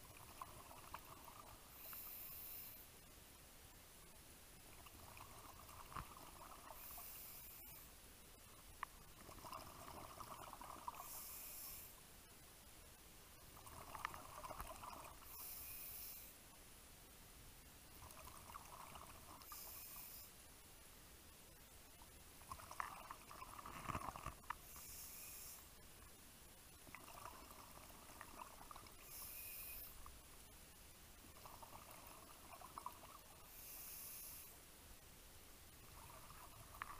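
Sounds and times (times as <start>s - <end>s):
regulator inhale hiss: 1.7s - 3.0s, 6.7s - 8.0s, 10.9s - 12.0s, 15.2s - 16.4s, 19.4s - 20.4s, 24.6s - 25.8s, 29.0s - 30.1s, 33.4s - 34.7s
exhaled bubbles underwater: 9.1s - 11.1s, 13.6s - 15.2s, 22.4s - 24.2s, 26.9s - 29.0s, 31.4s - 33.3s.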